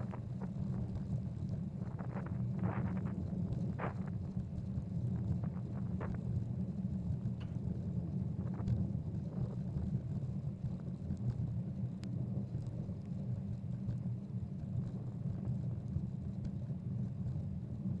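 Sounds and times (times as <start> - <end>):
wind noise: 0.0 - 10.9
faint ticks: 7.2 - 17.4.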